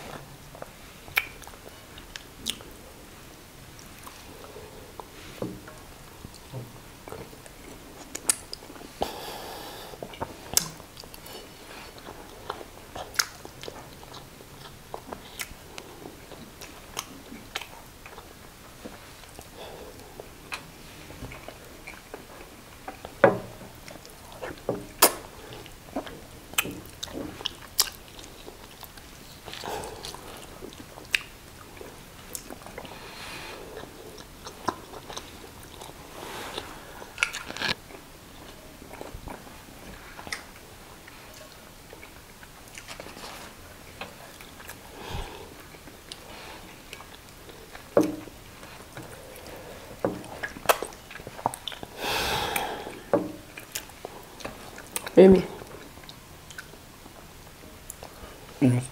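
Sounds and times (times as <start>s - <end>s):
chewing and biting: 23.8s - 38.0s, 44.1s - 52.0s.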